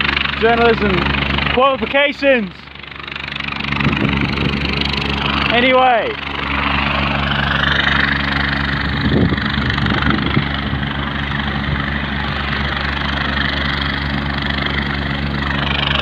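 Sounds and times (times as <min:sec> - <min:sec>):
helicopter engine and rotor drone: 0:00.0 - 0:16.0
low bumps: 0:00.0 - 0:16.0.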